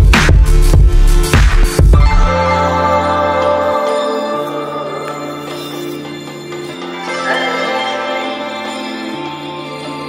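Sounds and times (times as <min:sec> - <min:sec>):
slow sustained chords: 0:02.1 - 0:10.0.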